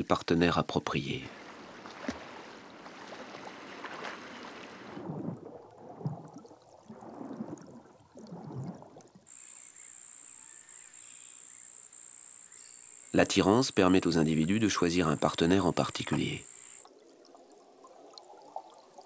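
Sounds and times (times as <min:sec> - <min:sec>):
sea water splashing: 0:01.3 - 0:09.3
high-pitched insect trill: 0:09.3 - 0:16.9.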